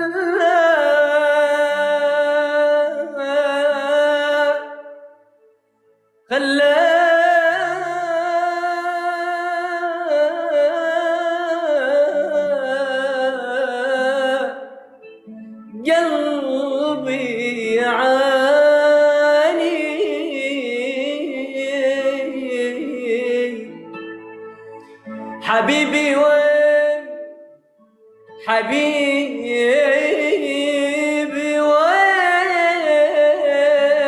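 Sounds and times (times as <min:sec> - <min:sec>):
man singing long held notes: 0:15.6 - 0:24.0, 0:24.8 - 0:27.4, 0:28.3 - 0:34.0.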